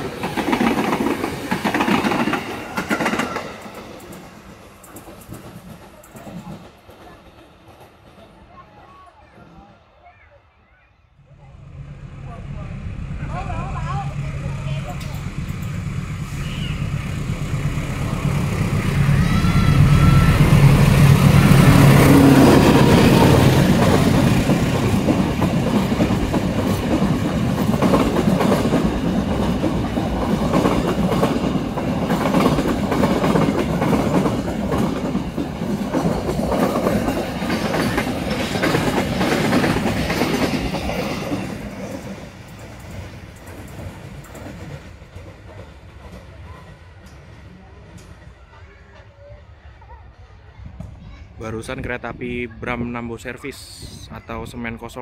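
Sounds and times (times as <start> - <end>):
locomotive engine drone: 11.2 - 32.1.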